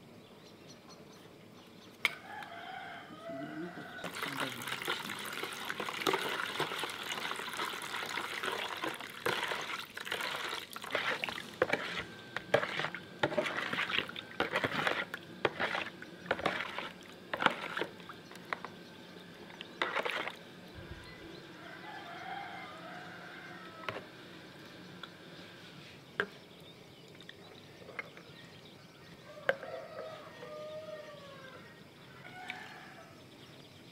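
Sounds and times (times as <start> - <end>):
water pouring into a plastic bowl: 4.0 - 11.8
spoon stirring liquid: 4.0 - 18.7, 19.6 - 20.4.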